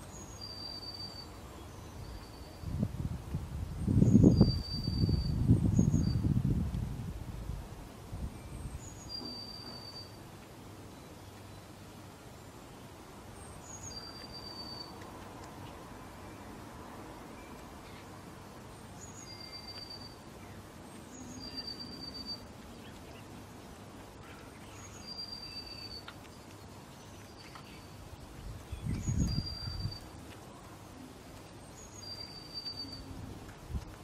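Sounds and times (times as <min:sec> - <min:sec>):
outdoor ambience: 0:00.0 - 0:34.0
songbird whistling: 0:00.2 - 0:01.4, 0:04.2 - 0:06.3, 0:08.8 - 0:10.2, 0:13.6 - 0:14.9, 0:19.0 - 0:20.2, 0:21.1 - 0:22.5, 0:24.6 - 0:26.2, 0:28.7 - 0:30.1, 0:31.8 - 0:33.1.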